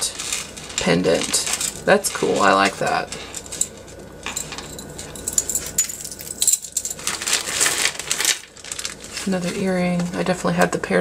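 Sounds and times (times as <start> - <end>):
plastic bag rustling: 0.0 - 10.4
metal jewelry jingling: 3.4 - 7.9.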